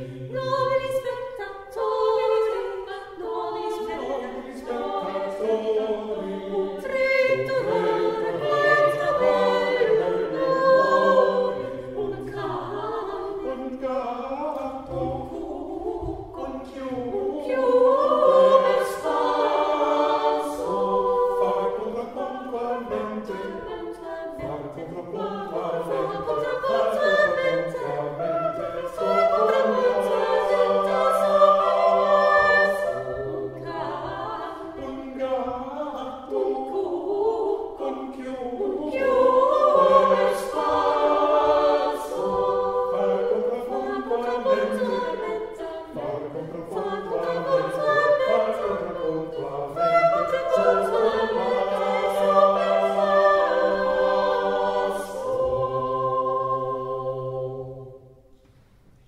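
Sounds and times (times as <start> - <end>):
choir singing a cappella: 0.0 - 58.4.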